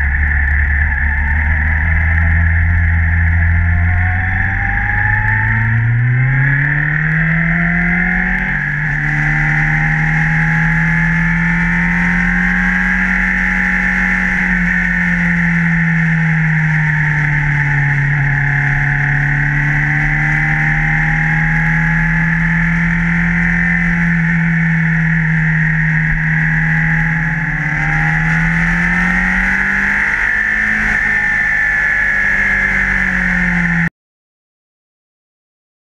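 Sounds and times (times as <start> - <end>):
motorcycle engine revving: 0.0 - 33.9.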